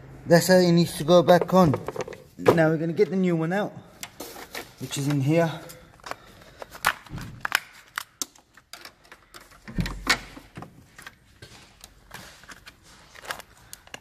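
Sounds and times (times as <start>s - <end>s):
packaging crackling and clicking: 12.4s - 14.0s.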